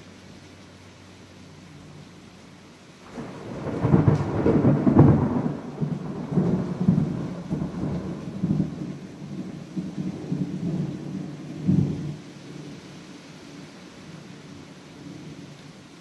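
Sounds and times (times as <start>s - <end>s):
heavy rain: 0.0s - 16.0s
thunder rolling: 3.1s - 12.2s.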